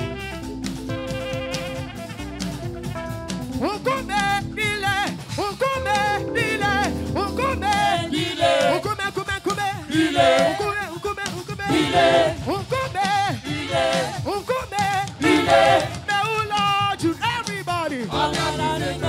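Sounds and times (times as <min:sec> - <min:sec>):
live band accompaniment: 0:00.0 - 0:19.0
choir singing gospel song: 0:05.2 - 0:16.8, 0:18.0 - 0:19.0.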